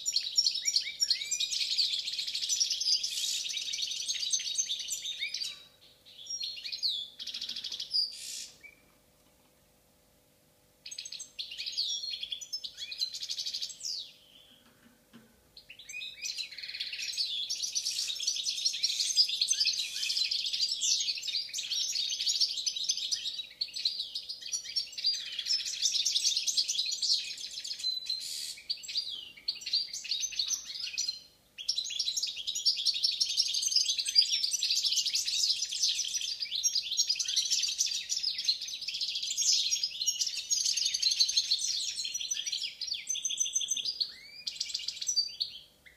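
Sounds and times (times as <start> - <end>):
goldfinch twittering song: 10.8 - 14.6, 15.6 - 45.9.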